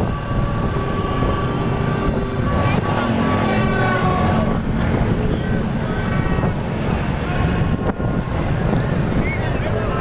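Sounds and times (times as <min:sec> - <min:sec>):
motorbike engines in traffic: 0:00.0 - 0:10.0
wind buffeting microphone: 0:00.0 - 0:10.0.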